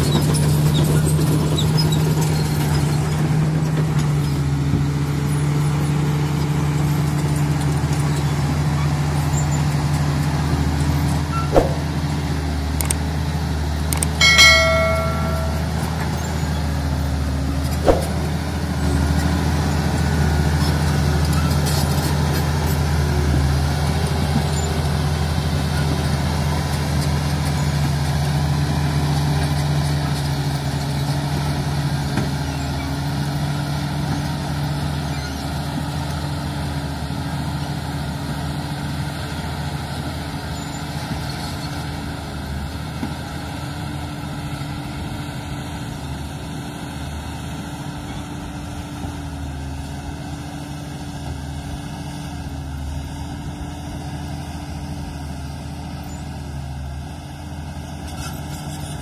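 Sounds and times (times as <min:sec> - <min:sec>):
bulldozer diesel engine under load: 0:00.0 - 0:14.7, 0:15.6 - 0:59.0.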